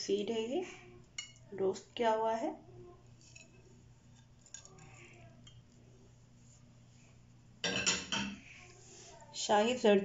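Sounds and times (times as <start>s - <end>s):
plate clinking: 7.6s - 8.4s.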